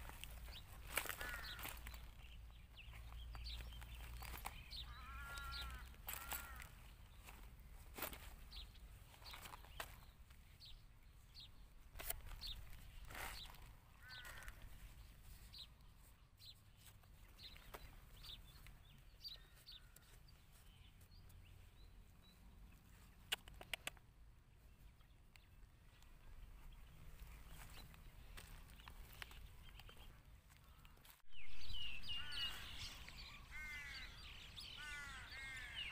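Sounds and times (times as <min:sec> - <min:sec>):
distant bird calls: 0:00.0 - 0:35.9
sharp clicks: 0:23.2 - 0:24.0.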